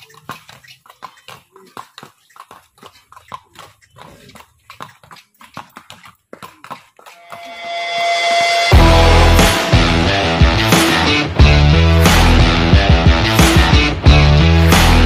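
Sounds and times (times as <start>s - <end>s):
horse hooves on pavement: 0.0s - 7.6s.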